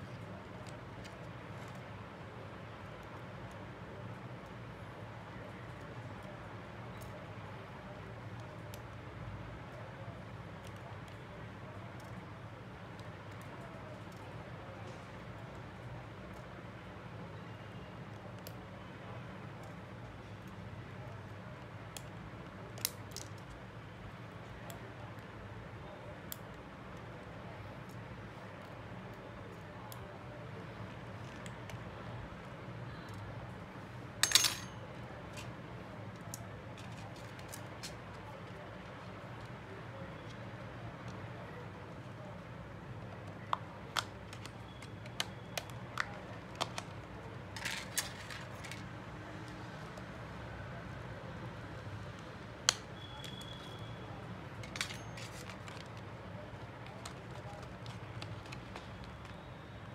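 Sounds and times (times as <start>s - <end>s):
small tools clicking and tapping: 34.2s - 35.5s, 54.6s - 56.0s.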